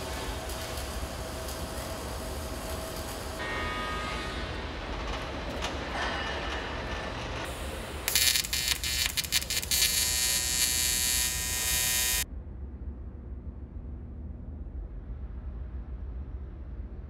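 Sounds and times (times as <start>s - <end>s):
arc welding buzz and crackle: 0.0s - 3.6s, 7.5s - 12.3s.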